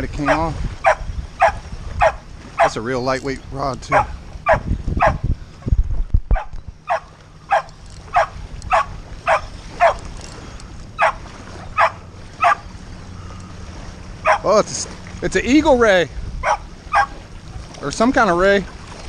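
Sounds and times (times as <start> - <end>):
dog yipping: 0.3 - 2.8, 3.9 - 5.2, 6.3 - 10.0, 11.0 - 11.2, 11.8 - 12.6, 14.2 - 14.5, 16.4 - 17.2.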